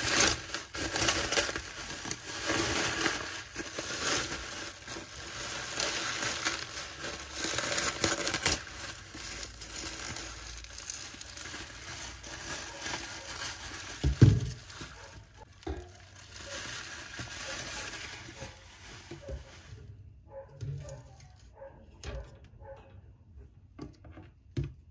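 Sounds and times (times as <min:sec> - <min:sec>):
bubble wrap crinkling: 0:00.0 - 0:19.9.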